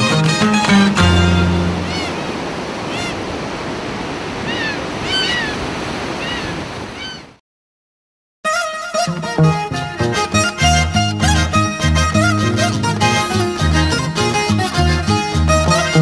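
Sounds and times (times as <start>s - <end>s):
guitar music: 0.0s - 2.3s, 8.5s - 16.0s
surf breaking on rocky shore: 0.0s - 7.2s
bird calling: 0.7s - 3.3s, 4.4s - 7.4s.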